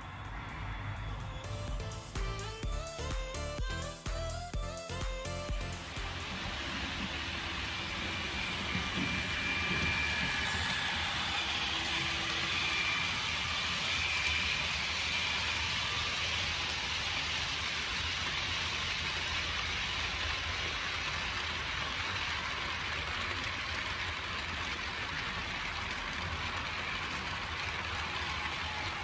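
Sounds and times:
model wheels hissing on track: 5.8 - 29.0.

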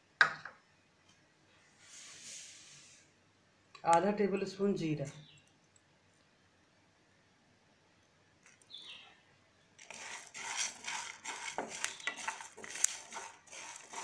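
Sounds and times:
spatula scraping seeds in metal pan: 9.8 - 14.0.

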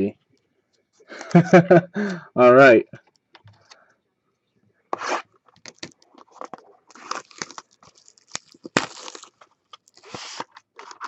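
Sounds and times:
plastic shrink wrap crinkling: 5.5 - 11.0.

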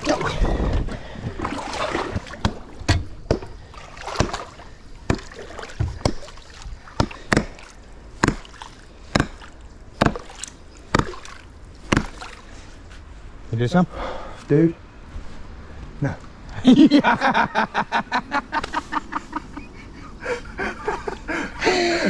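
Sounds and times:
water splashing: 0.0 - 12.8
hatchet chopping wet log: 2.3 - 11.3, 11.9 - 12.3.

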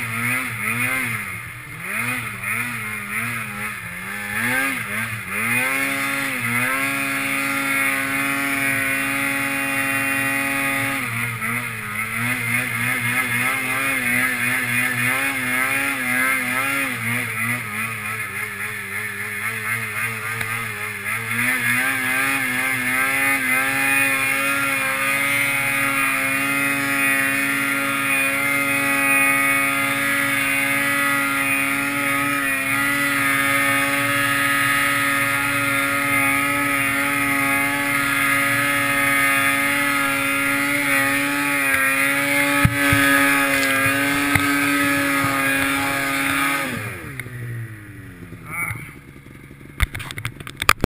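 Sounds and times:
snowmobile engine at high revs: 0.0 - 50.9.

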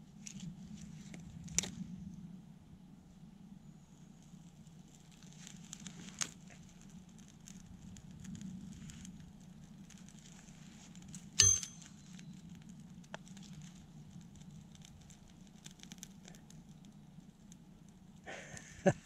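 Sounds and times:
small fire crackling: 0.0 - 19.0
sharp metallic clink: 11.4 - 11.9.

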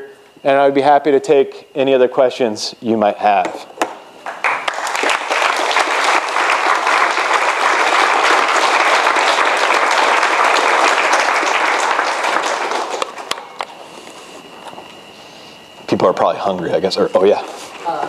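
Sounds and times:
audience applauding: 4.2 - 13.7.

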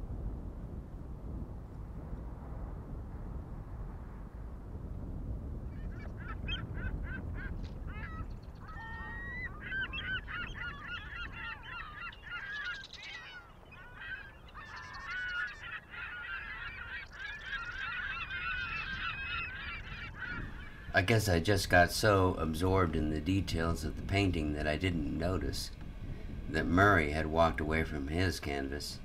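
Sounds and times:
wind rumble on microphone: 0.0 - 29.0
flock of birds calling: 5.7 - 25.6.

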